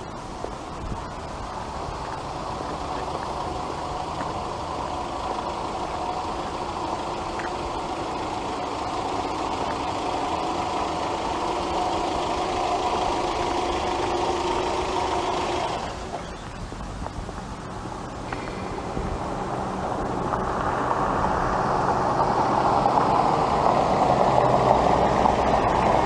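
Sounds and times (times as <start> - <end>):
vehicle engine running: 0.0 - 26.0.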